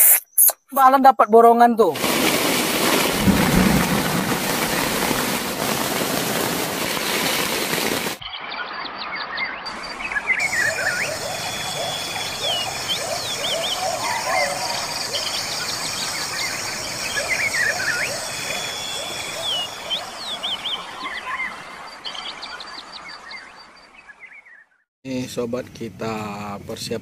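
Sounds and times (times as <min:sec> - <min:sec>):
birds chirping and whistling: 0:08.2 - 0:24.7.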